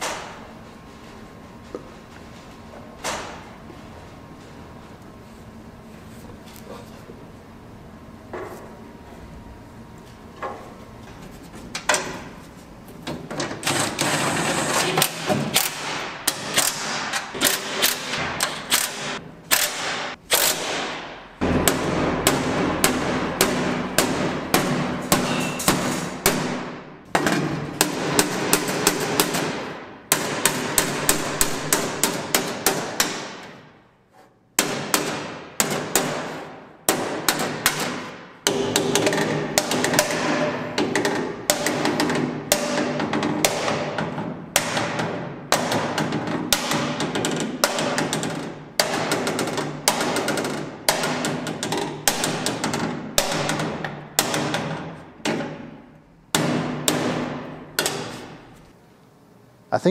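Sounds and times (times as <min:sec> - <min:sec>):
hammer striking steel: 0:15.6 - 0:33.6.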